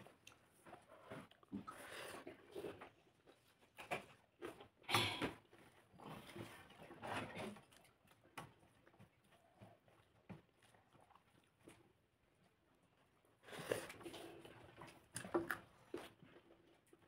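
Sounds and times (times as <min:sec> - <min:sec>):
chewing noises: 0:00.0 - 0:17.0.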